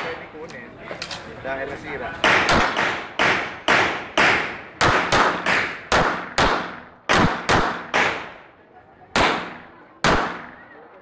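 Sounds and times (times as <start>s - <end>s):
pistol shots with echo: 2.2s - 8.4s, 9.1s - 10.6s.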